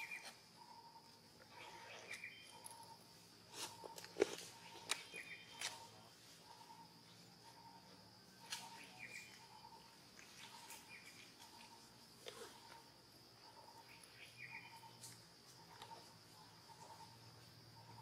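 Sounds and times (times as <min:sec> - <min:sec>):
high insect drone: 0:00.0 - 0:18.0.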